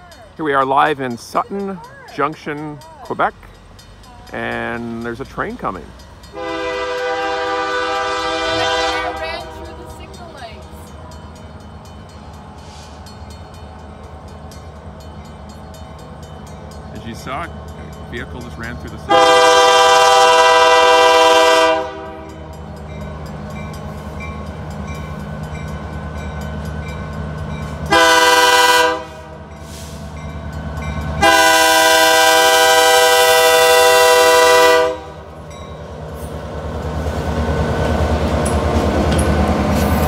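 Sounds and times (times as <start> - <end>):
diesel locomotive engine: 0.0 - 40.0
train rumble: 0.0 - 40.0
locomotive air horn blasts: 6.4 - 9.7, 19.1 - 22.4, 27.9 - 29.9, 31.2 - 35.2.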